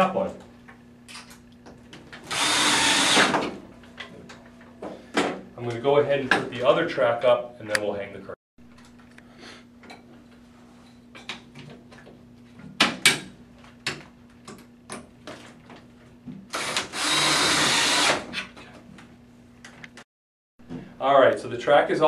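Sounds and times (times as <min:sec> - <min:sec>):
cordless drill driving screw: 0:02.3 - 0:03.3, 0:16.5 - 0:18.2.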